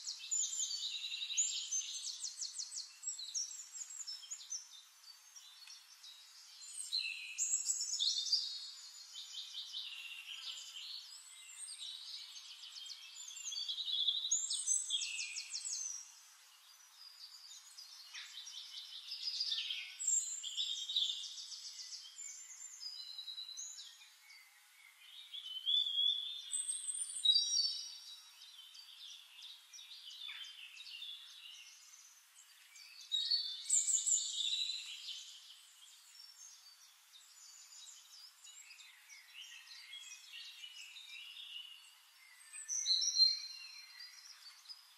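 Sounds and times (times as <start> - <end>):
songbirds chirping and trilling: 0.0 - 44.9.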